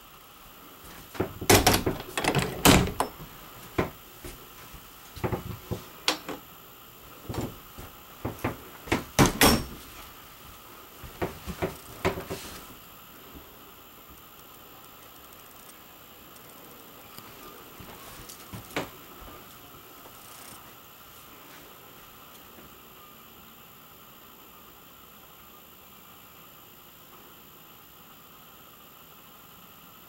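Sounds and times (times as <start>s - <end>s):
doors opening and shutting: 0.9s - 4.0s, 5.2s - 6.5s, 7.3s - 10.0s, 11.2s - 12.7s.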